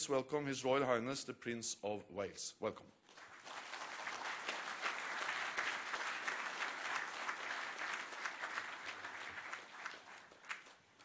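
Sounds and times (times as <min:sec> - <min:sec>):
large audience applauding: 0:03.1 - 0:11.0.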